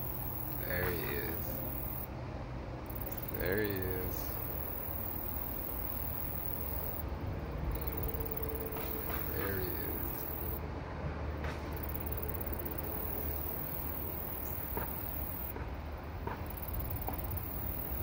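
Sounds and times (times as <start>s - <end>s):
high-pitched insect buzzing: 2.9s - 7.0s, 7.7s - 10.6s.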